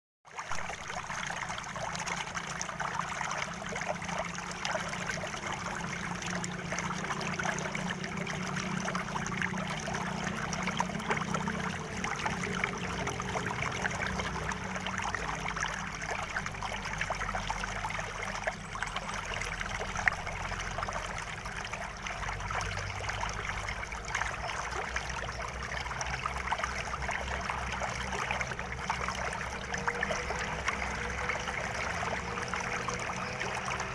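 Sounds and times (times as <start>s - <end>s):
water trickling and splashing: 0.2s - 33.9s.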